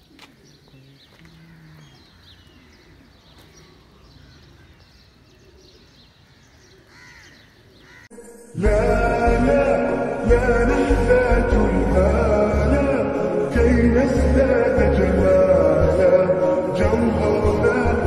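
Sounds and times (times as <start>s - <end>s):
bird chirps and calls: 0.0s - 8.1s
loud background music: 8.1s - 18.0s.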